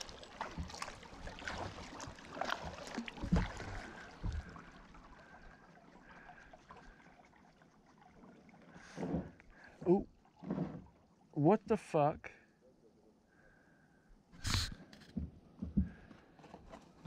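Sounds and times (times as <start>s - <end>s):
paddle splashing water: 0.0s - 11.4s.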